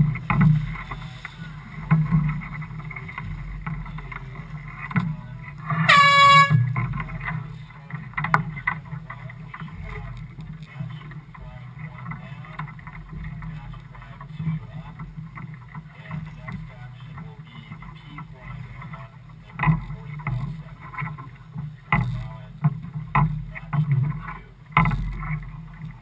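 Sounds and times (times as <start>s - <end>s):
steady low rumble: 0.0s - 24.8s
air horn blast: 5.7s - 6.8s.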